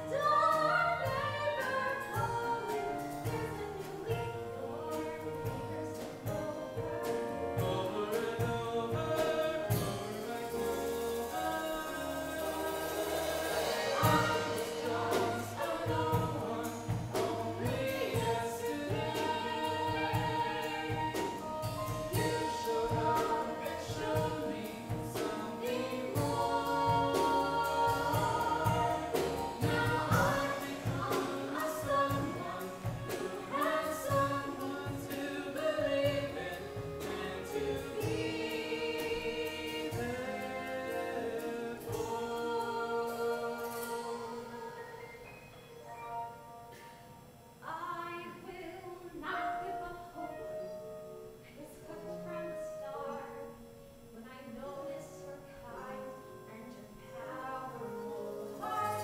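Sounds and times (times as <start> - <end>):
girl singing: 0.0 - 5.5
instrumental accompaniment: 0.0 - 47.7, 55.5 - 59.0.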